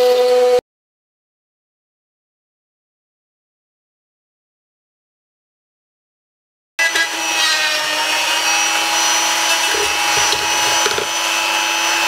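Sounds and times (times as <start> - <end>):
rotary tool whining and grinding: 6.8 - 12.0
burr catching knocks: 9.7 - 11.2.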